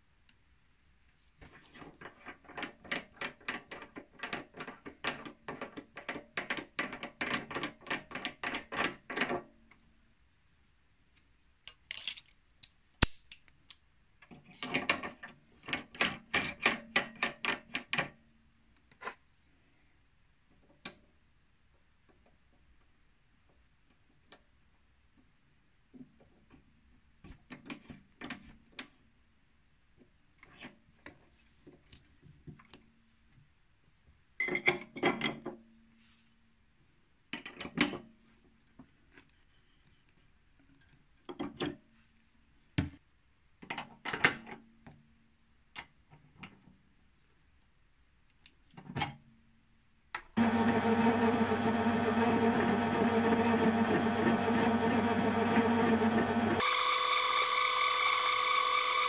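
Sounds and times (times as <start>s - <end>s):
metal clicks and clinks: 11.6s - 13.9s
lathe running with steady hum: 50.4s - 59.0s.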